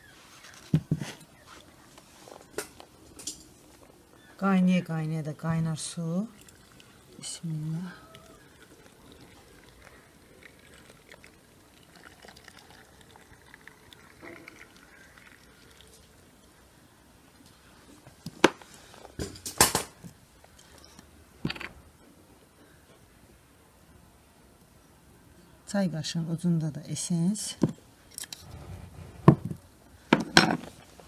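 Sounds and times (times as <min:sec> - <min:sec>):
water trickling into a jar: 0:05.4 - 0:16.6.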